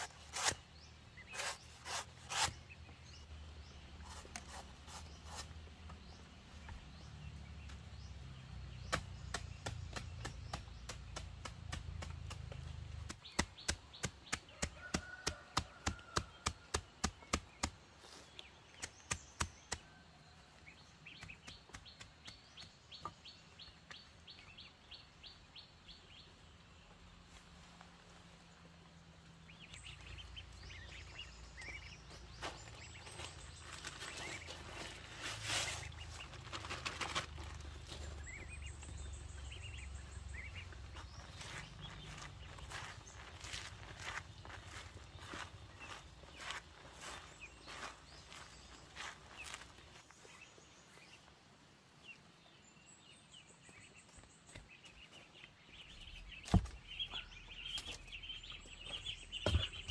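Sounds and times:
birds chirping: 0:00.0 - 0:59.9
sharp chopping strikes: 0:08.8 - 0:14.4.

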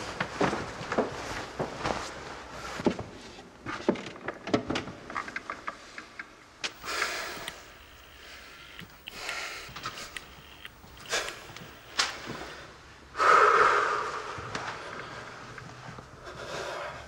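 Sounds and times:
light ticks: 0:06.7 - 0:12.4
short hissing rush: 0:06.7 - 0:12.6.

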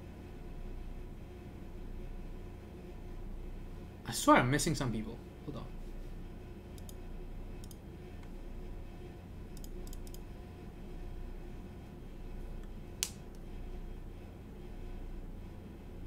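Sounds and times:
low steady hum: 0:00.0 - 0:16.0
computer mouse clicks: 0:06.8 - 0:07.0, 0:07.6 - 0:07.8, 0:09.5 - 0:10.2.

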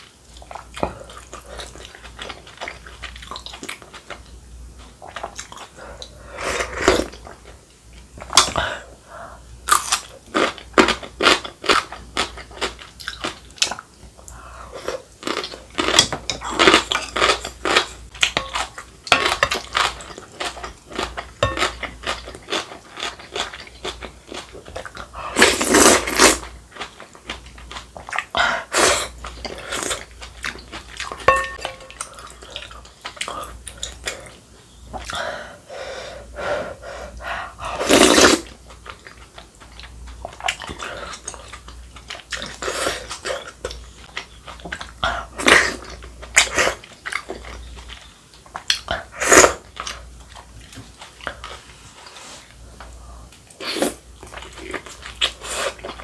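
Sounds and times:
slurping broth: 0:37.8 - 0:38.5
wet chewing and smacking: 0:38.6 - 0:45.1, 0:45.8 - 0:49.0.

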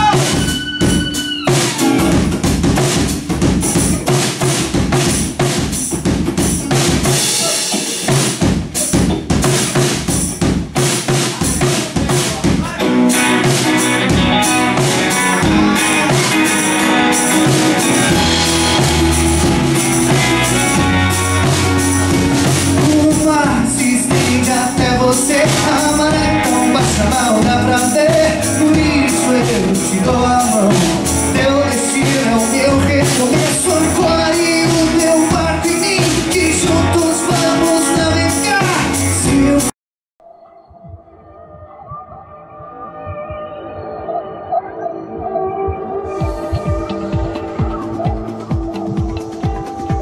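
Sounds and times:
acoustic and electric guitars: 0:00.0 - 0:10.3, 0:12.3 - 0:39.7, 0:45.6 - 0:50.0
drum kit beat: 0:00.0 - 0:39.7, 0:46.0 - 0:50.0
person singing: 0:12.6 - 0:39.7.

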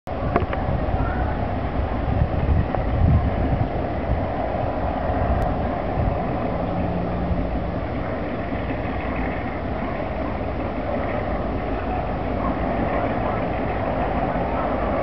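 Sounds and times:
diesel locomotive rumbling: 0:00.1 - 0:15.0.

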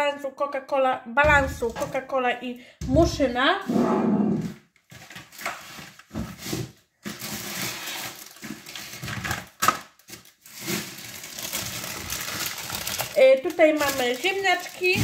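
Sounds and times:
plastic bags rustling: 0:04.8 - 0:15.0.

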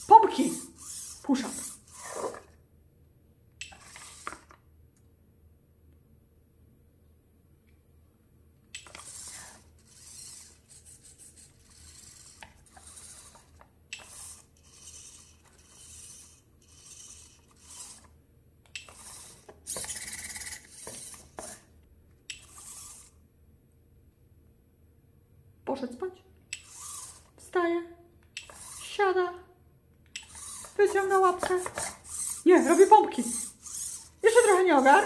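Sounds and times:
robot servo motors whirring: 0:00.0 - 0:02.6, 0:03.6 - 0:04.5, 0:08.8 - 0:21.7, 0:22.3 - 0:23.2, 0:26.6 - 0:27.5, 0:28.4 - 0:29.0, 0:30.2 - 0:35.0.

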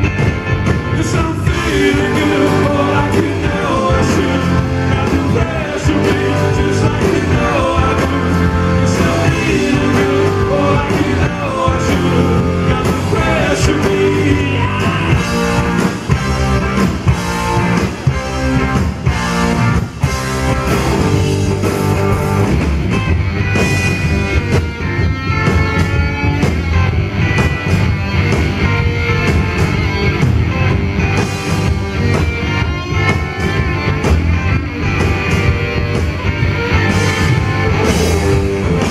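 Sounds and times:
electric guitars: 0:00.0 - 0:38.9
man singing: 0:00.9 - 0:15.4.

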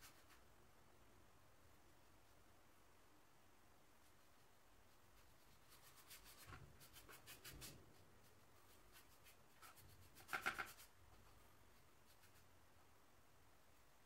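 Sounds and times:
paintbrush strokes: 0:00.0 - 0:00.5, 0:01.8 - 0:02.6, 0:03.9 - 0:12.6.

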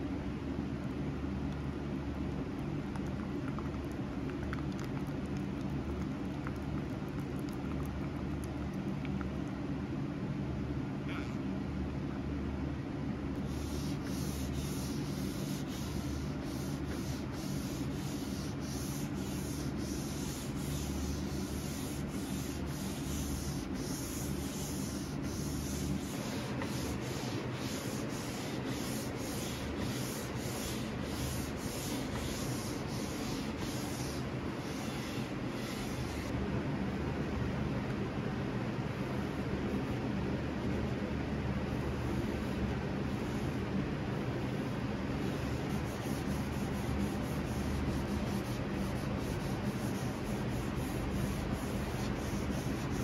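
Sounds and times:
steady low hum: 0:00.0 - 0:53.0
pad rubbing on wood: 0:13.4 - 0:36.3, 0:45.3 - 0:53.0.

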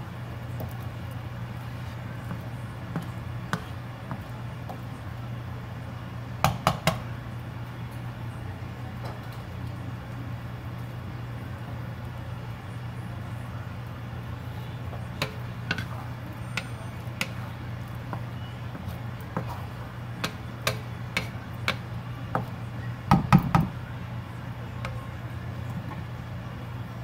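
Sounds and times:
wooden spatula scraping wok: 0:14.5 - 0:22.6.

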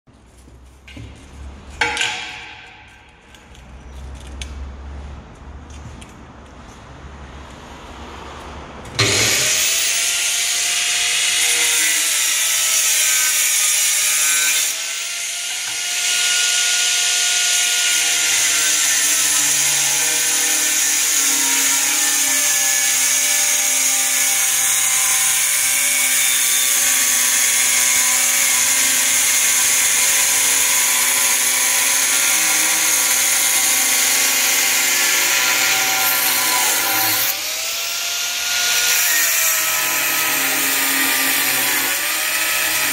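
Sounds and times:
angle grinder cutting tile: 0:09.0 - 0:42.9.

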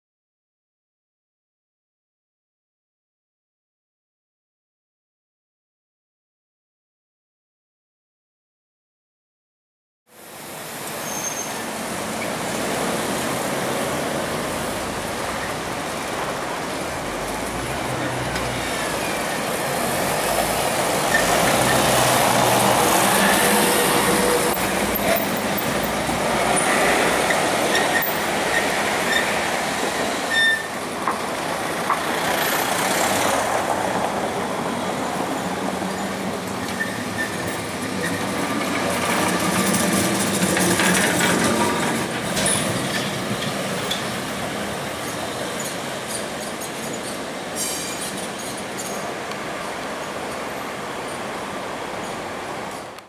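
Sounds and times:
passing cars and vans: 0:10.1 - 0:53.0
tram wheels rumbling on rails: 0:10.2 - 0:53.0
high wheel squeals: 0:10.6 - 0:13.1, 0:17.4 - 0:30.9, 0:34.8 - 0:51.4.

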